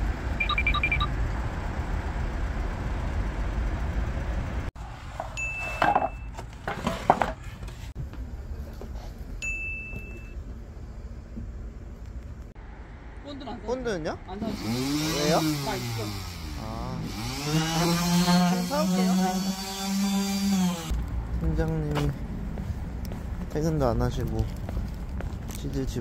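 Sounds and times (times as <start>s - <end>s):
wooden boards clattering: 5.2s - 7.8s
chime-like dings: 9.4s - 10.4s.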